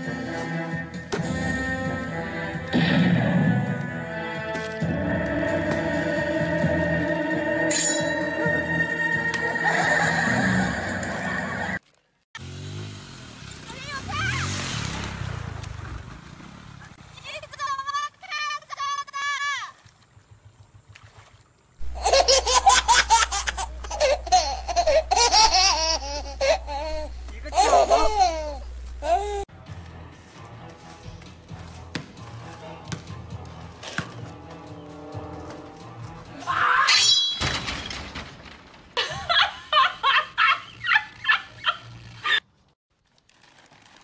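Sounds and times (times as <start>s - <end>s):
person laughing: 9.5s - 11.8s, 21.8s - 29.4s, 39.0s - 42.4s
rapid high-pitched laughter: 39.0s - 42.4s.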